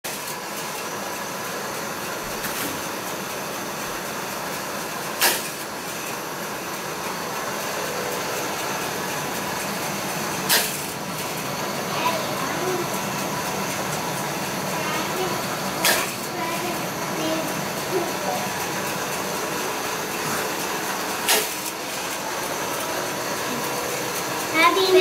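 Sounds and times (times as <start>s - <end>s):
toy roller coaster motor whirring: 0.1s - 25.0s
sharp clacks: 15.8s - 16.2s.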